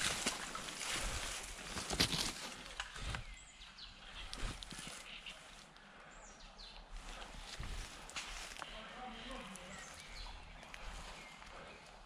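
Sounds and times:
footsteps through undergrowth: 0.0s - 3.4s, 4.0s - 5.8s, 6.9s - 12.0s
leafy brush rustling: 0.0s - 3.4s, 4.0s - 5.8s, 7.0s - 11.8s.

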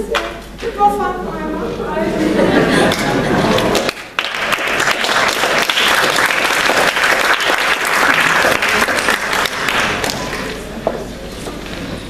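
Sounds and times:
audience applauding: 2.9s - 10.7s.

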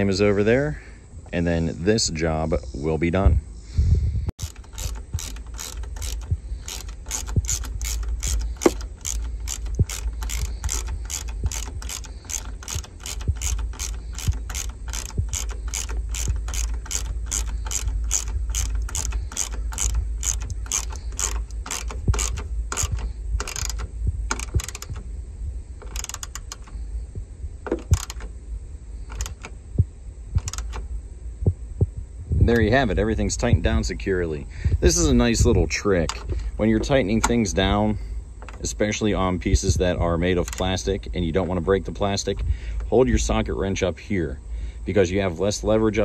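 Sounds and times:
ratchet wrench clicking: 4.4s - 25.1s, 25.8s - 26.8s, 27.7s - 28.3s, 29.1s - 29.5s, 30.4s - 30.8s, 40.4s - 40.8s.

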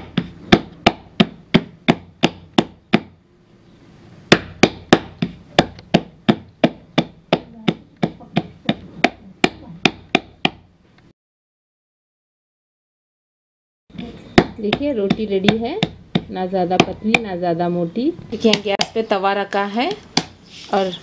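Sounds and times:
hands slapping dough flat: 0.0s - 3.1s, 4.3s - 10.6s.

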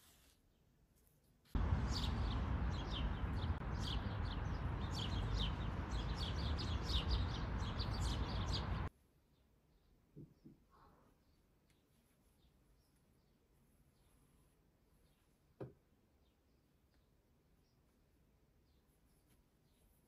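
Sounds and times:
birds chirping: 1.6s - 8.9s
low outdoor rumble: 1.6s - 8.9s.

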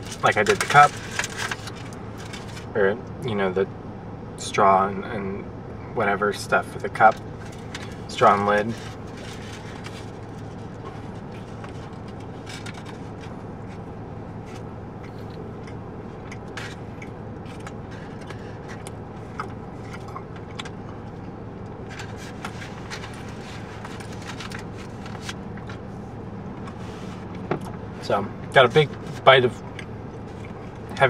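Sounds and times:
aluminium foil crinkling: 0.0s - 2.7s, 7.1s - 13.8s, 21.8s - 25.4s
low hum inside a car: 0.0s - 31.0s
person chewing: 14.4s - 21.2s.

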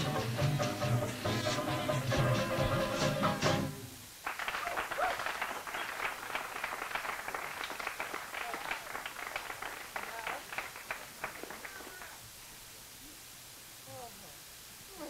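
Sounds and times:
audience applauding: 4.2s - 12.2s.

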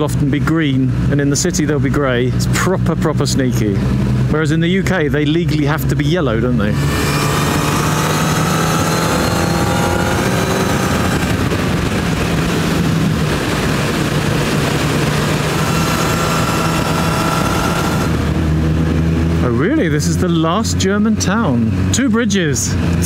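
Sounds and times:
motorcycle engine running: 0.0s - 23.0s
wind noise: 6.7s - 20.1s.

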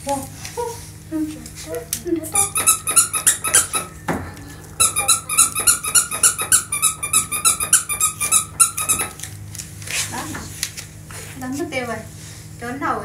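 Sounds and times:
short high-pitched squeaks: 2.4s - 4.0s, 4.8s - 9.2s.

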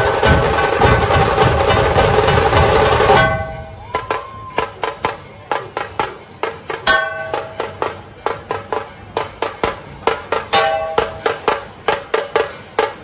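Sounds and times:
quick sharp drum strokes: 0.0s - 13.0s
held melodic note: 10.5s - 11.6s.

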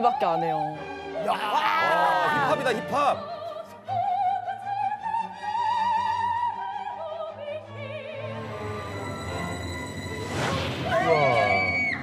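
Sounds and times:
operatic soprano singing: 0.0s - 9.3s
orchestral backing: 2.1s - 11.7s.

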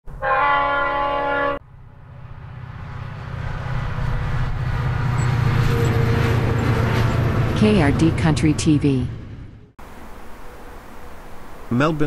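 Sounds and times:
train horn chord: 0.1s - 2.0s
train rumbling and humming: 0.1s - 12.0s.

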